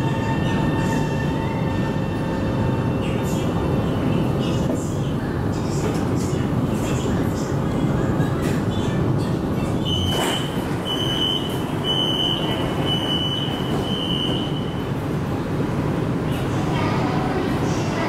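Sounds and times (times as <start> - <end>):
high door warning beeps: 9.9 - 14.8.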